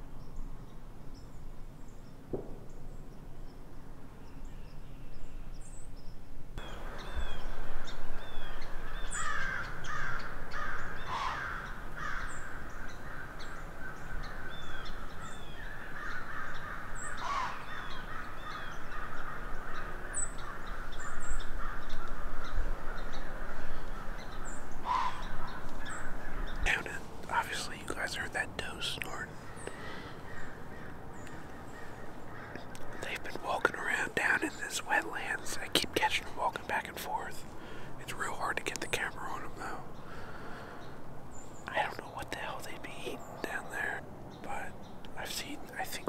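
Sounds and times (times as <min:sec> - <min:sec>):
small birds chirping: 0:00.0 - 0:46.0
crows cawing: 0:08.8 - 0:26.8, 0:29.4 - 0:33.2, 0:40.0 - 0:40.9.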